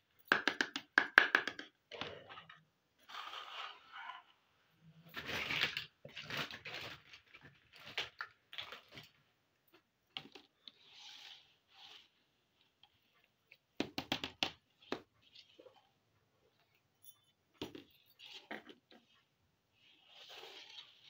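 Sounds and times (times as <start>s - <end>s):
plastic toys clicking on tabletop: 13.8s - 15.0s.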